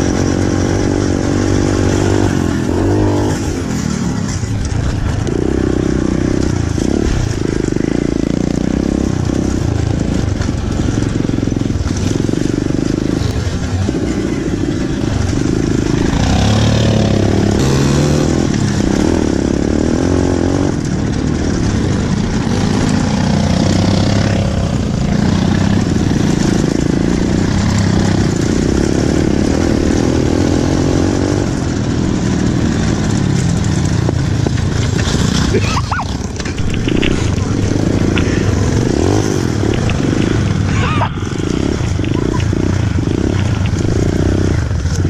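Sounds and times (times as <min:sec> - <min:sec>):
motorbike engine revving: 0:00.0 - 0:45.0.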